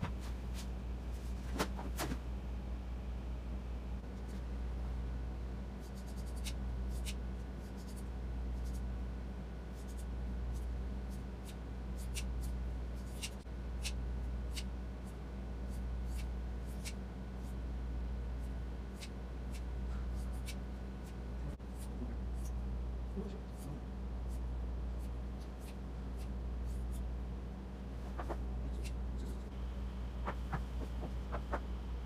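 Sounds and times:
low hum: 0.0s - 32.0s
scissors snipping hair: 5.9s - 8.8s, 11.4s - 14.7s, 15.7s - 17.0s, 25.0s - 27.0s.

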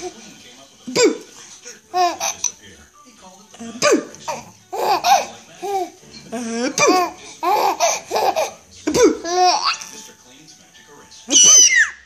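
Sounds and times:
baby laughing: 1.9s - 2.6s, 3.8s - 9.9s.

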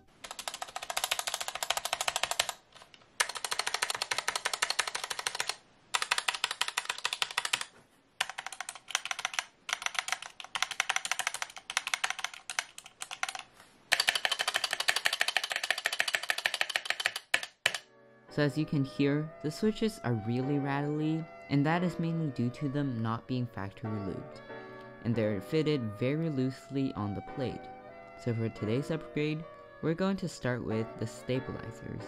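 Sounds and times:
keyboard keys clacking: 0.0s - 2.6s, 3.2s - 17.8s.

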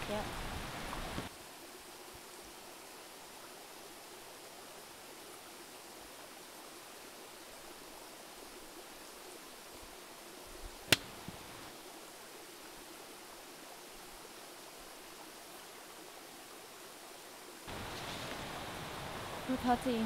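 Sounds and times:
river water rushing: 0.0s - 20.0s
sharp click: 10.9s - 11.1s.

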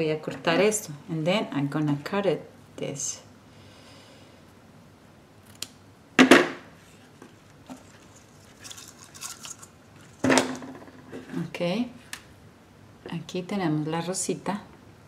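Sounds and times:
ribbon rustling: 6.8s - 10.2s.

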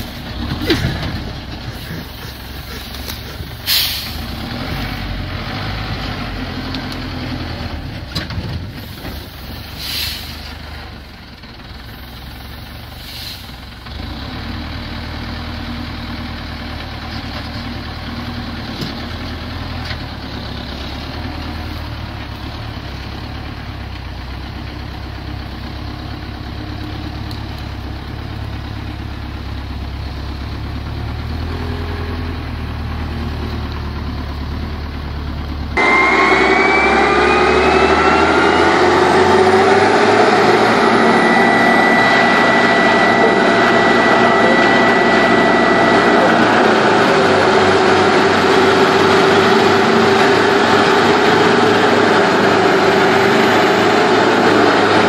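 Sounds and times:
wood chipper whining: 0.0s - 8.8s, 35.6s - 55.0s
truck engine humming: 0.0s - 55.0s.

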